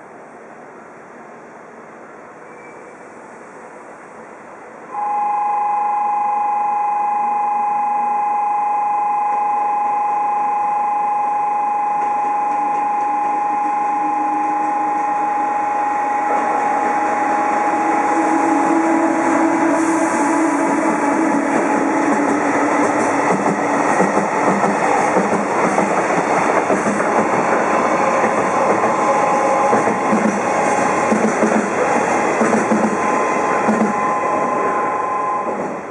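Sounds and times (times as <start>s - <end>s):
train passing at speed: 0.0s - 5.1s, 11.7s - 35.9s
two-note electronic tone: 4.9s - 18.7s
wheels clacking over rail joints: 20.6s - 34.2s.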